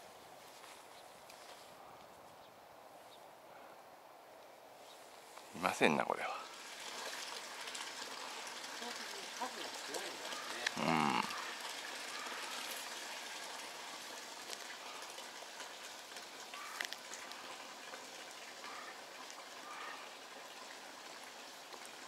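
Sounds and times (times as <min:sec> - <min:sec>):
water flowing in channel: 0:05.1 - 0:22.0.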